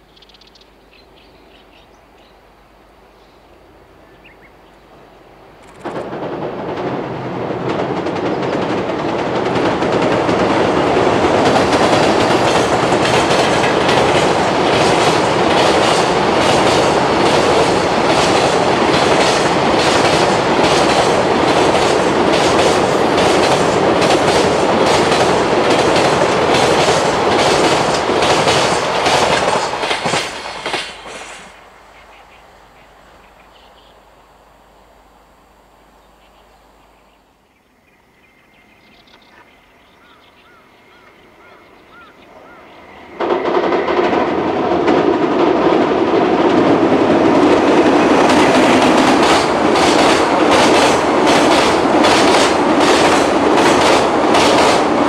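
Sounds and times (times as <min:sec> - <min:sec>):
train rumbling over bridge: 0:04.8 - 0:33.6, 0:39.7 - 0:55.0
wheels clacking over rail joints: 0:05.8 - 0:31.4, 0:41.9 - 0:55.0.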